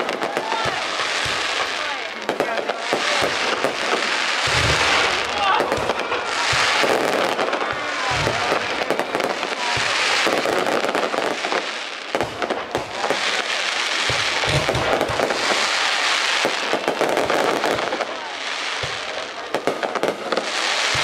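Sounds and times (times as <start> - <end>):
fireworks crackling: 0.0 - 21.0
low firework thuds: 0.0 - 21.0.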